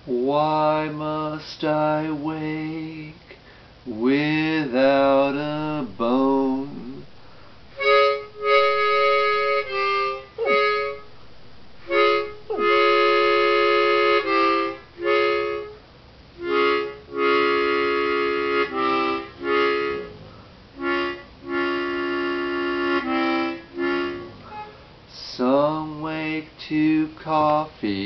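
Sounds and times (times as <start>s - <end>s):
harmonica playing chords: 5.4s - 25.1s.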